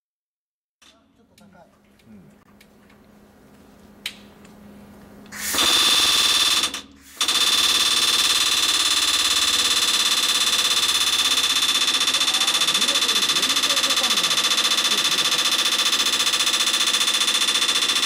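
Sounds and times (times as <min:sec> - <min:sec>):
pneumatic air hammer rattling: 0:05.3 - 0:18.0
steady high-pitched tone: 0:05.4 - 0:18.0.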